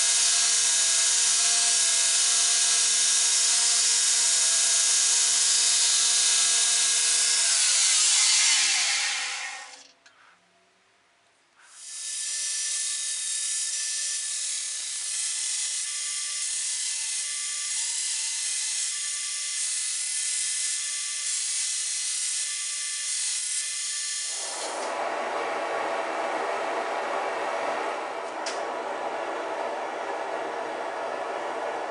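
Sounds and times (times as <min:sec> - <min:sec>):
belt grinder grinding metal: 0:00.0 - 0:09.9, 0:11.7 - 0:24.9
low even rushing noise: 0:24.8 - 0:31.9.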